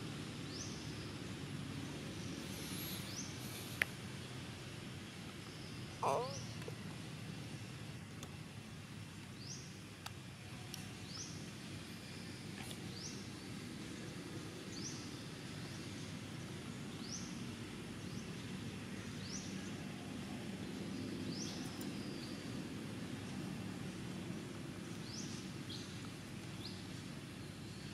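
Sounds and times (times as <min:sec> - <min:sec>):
steady background hiss: 0:00.0 - 0:27.9.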